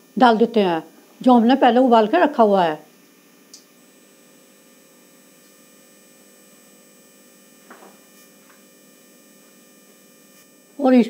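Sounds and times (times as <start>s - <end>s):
faint electrical hum: 0.0s - 11.0s
small click: 3.5s - 3.7s.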